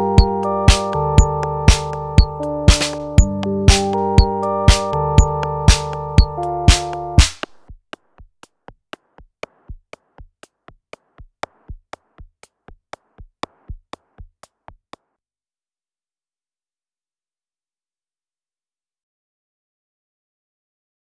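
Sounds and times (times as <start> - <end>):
drum machine beat: 0.0 - 15.1.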